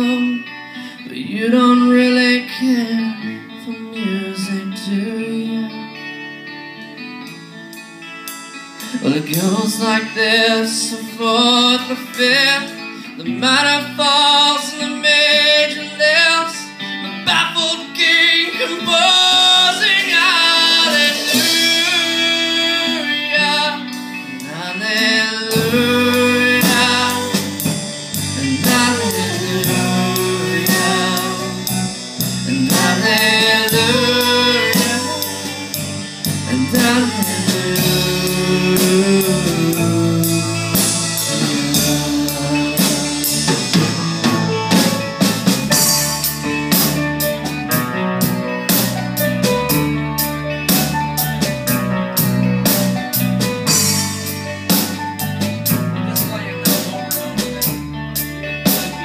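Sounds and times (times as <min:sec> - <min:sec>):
person singing: 0:00.0 - 0:06.1, 0:08.8 - 0:49.9, 0:52.9 - 0:58.0
drums: 0:00.0 - 0:59.0
electric guitar: 0:00.0 - 0:59.0
keyboard: 0:00.0 - 0:59.0
deep bass notes: 0:17.3 - 0:59.0.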